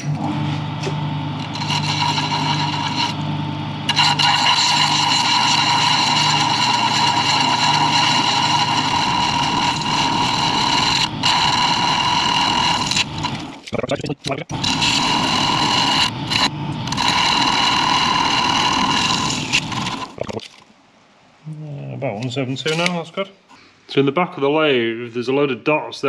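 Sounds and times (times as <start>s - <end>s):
lathe tool cutting wood: 0.0s - 13.6s, 14.5s - 20.2s
lathe motor hum: 0.0s - 13.7s, 14.5s - 20.2s.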